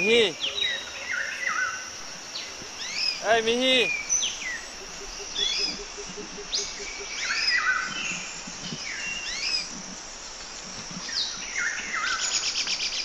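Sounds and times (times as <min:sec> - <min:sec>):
birds whistling calls: 0:00.0 - 0:09.9.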